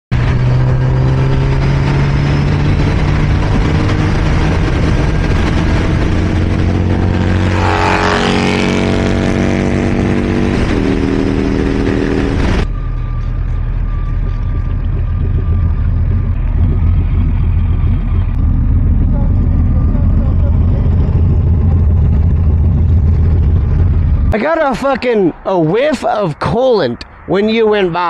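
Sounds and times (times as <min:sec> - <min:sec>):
wind rush on microphone: 0:00.1 - 0:12.7
motorcycle engine running: 0:00.1 - 0:24.4.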